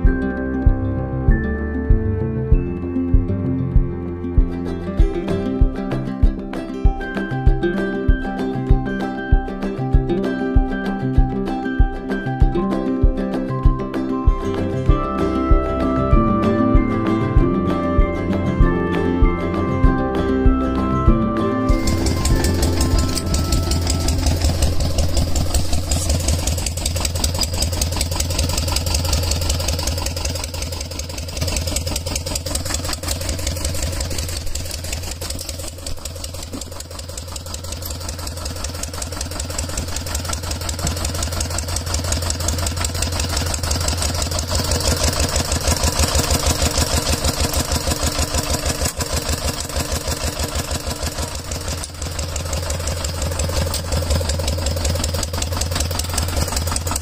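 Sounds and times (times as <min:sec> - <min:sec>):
diesel engine chugging: 0:14.8 - 0:57.0.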